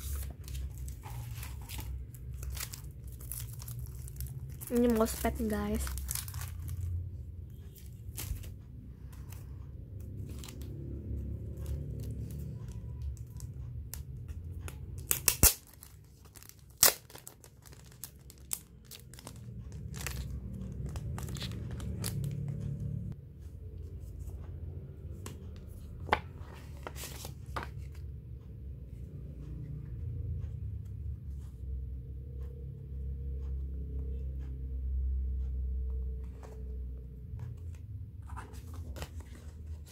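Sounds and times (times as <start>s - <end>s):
cellophane crinkling and tearing: 0.0s - 6.9s, 15.0s - 22.4s.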